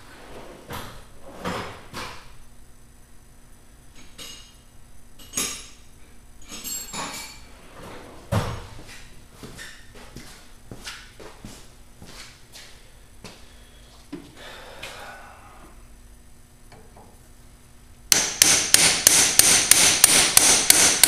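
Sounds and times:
hammer knocking on metal: 18.1s - 21.0s.

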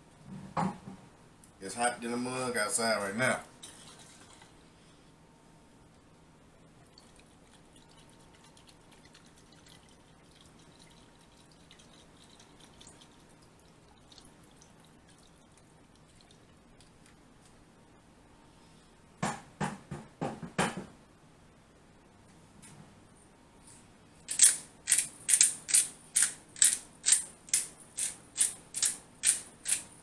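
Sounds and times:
loud knocks or rattles: 19.2s - 20.9s.

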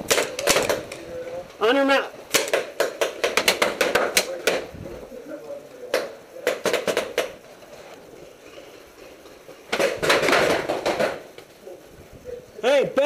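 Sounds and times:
paintball markers firing: 0.0s - 1.1s, 2.3s - 4.7s, 5.9s - 7.4s.

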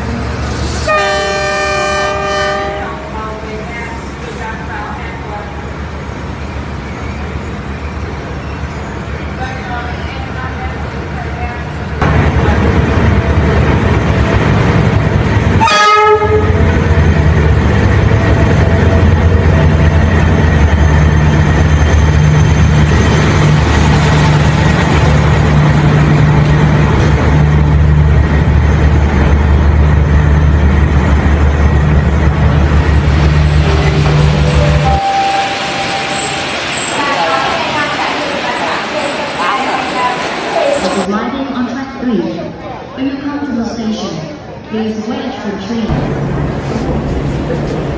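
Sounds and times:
train running hum: 0.0s - 41.3s, 44.3s - 47.9s
train horn blast: 0.8s - 3.0s, 15.6s - 16.6s.

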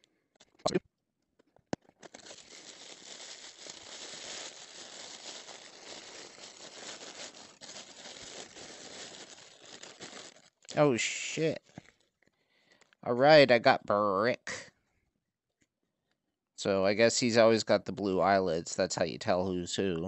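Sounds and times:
tissue paper crinkling: 1.9s - 10.7s.

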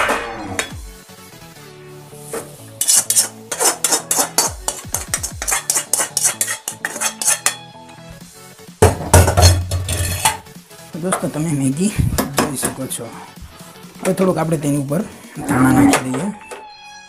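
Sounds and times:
spoon scraping metal pan: 2.4s - 7.7s, 9.3s - 10.5s.

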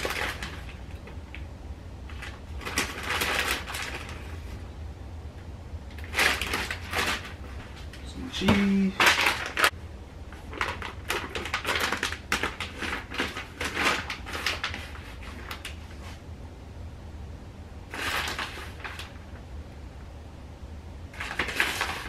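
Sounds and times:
food packet rustling: 0.0s - 1.5s, 2.1s - 4.6s, 5.9s - 16.2s, 17.9s - 19.3s, 21.1s - 22.0s.

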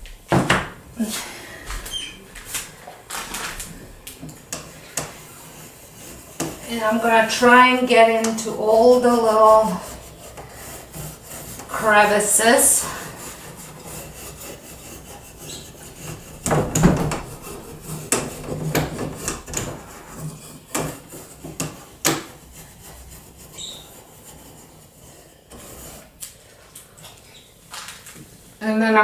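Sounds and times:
brush scrubbing wood: 2.4s - 28.8s
sharp knocks: 16.3s - 19.9s.

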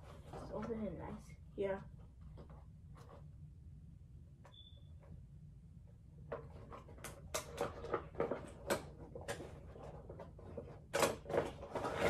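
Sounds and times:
packaging rustling and crinkling: 6.7s - 12.0s.

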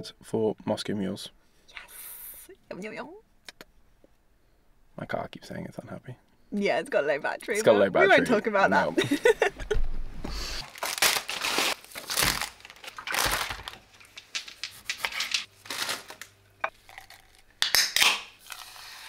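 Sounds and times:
packaging rustling and crinkling: 10.6s - 17.4s.

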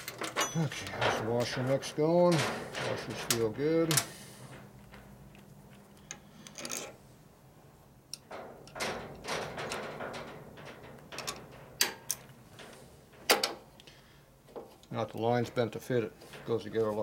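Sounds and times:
small metal parts clicking: 6.0s - 7.0s.

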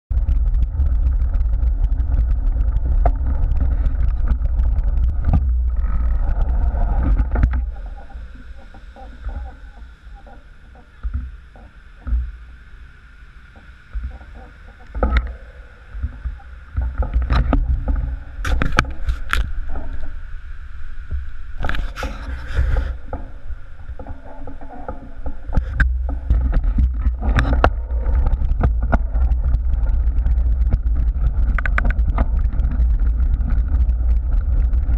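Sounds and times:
gravel crunching under bike tyres: 0.1s - 12.6s, 13.6s - 34.9s
wind rumble on microphone: 0.1s - 34.9s
bike clicks: 17.2s - 19.6s, 25.5s - 34.9s.

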